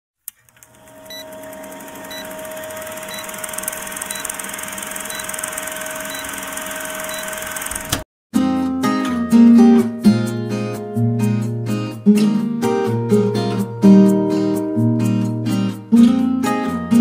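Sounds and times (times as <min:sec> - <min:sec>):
film projector clattering: 0:00.3 - 0:08.0
projector hum: 0:00.3 - 0:08.0
short beeps: 0:03.0 - 0:03.5, 0:04.1 - 0:04.3, 0:05.1 - 0:07.4.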